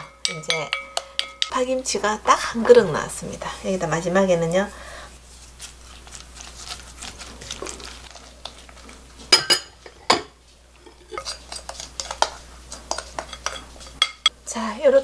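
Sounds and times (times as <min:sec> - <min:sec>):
spoon knocking against glass: 0:00.2 - 0:01.5
spoon scraping glass bowl: 0:10.8 - 0:14.3.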